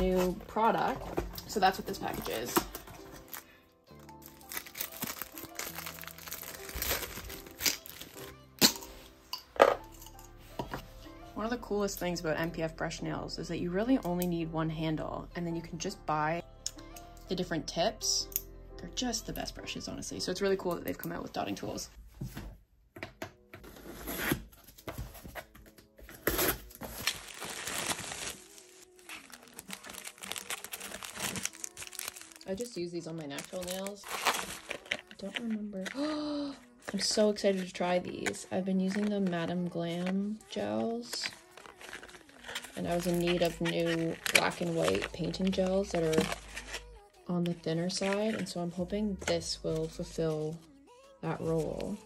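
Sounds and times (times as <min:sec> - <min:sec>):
plastic packaging crinkling: 0:00.0 - 0:08.8, 0:25.2 - 0:37.6, 0:39.9 - 0:47.0
soft background music: 0:00.0 - 0:52.0
packing tape cut and torn: 0:01.3 - 0:09.0, 0:23.6 - 0:36.2, 0:41.0 - 0:47.0.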